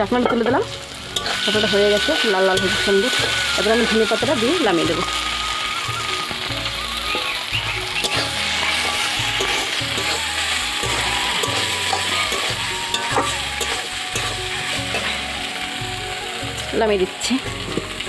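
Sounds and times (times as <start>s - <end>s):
food sizzling in oil: 0.0s - 18.0s
metal spatula scraping pan: 0.2s - 5.3s, 8.0s - 15.3s.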